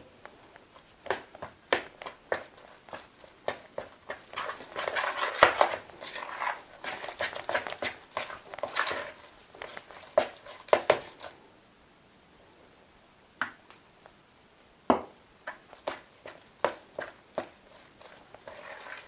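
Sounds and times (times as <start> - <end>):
spoon stirring dough in bowl: 0.6 - 11.3, 15.5 - 19.0.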